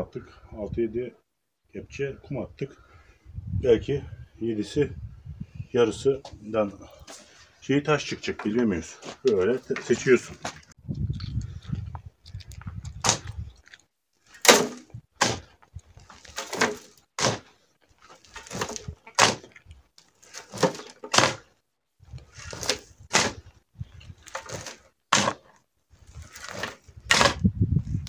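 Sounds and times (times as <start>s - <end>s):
shovel scraping soil: 14.3s - 15.4s, 16.1s - 19.5s, 20.2s - 21.5s, 22.2s - 23.5s, 24.1s - 27.5s.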